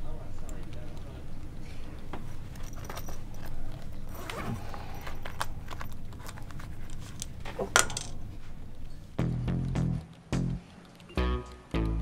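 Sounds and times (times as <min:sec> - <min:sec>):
low steady hum: 0:00.0 - 0:12.0
objects knocking and clattering: 0:05.2 - 0:08.5.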